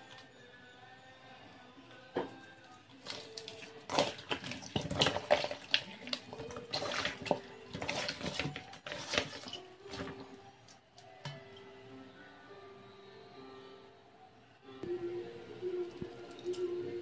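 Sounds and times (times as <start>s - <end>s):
hand squishing raw meat: 3.0s - 10.2s.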